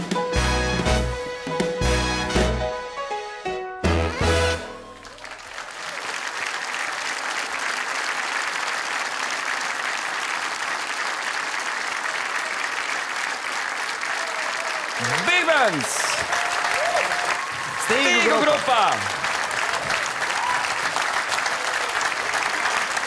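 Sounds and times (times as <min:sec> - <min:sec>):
big band final chord: 0:00.1 - 0:05.1
audience applauding: 0:04.5 - 0:23.0.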